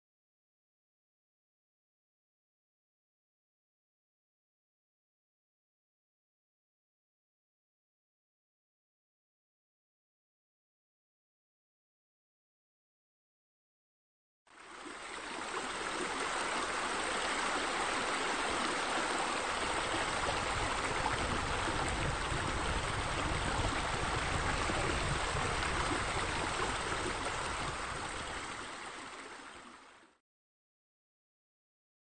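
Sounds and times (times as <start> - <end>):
running splashing water: 14.8 - 30.0.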